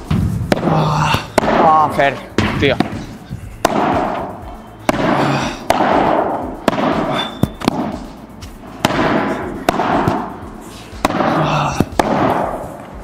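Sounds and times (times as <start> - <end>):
padel ball struck by rackets: 0.1 - 1.7, 2.4 - 3.0, 3.6 - 4.3, 4.9 - 8.1, 8.8 - 10.4, 11.0 - 12.6.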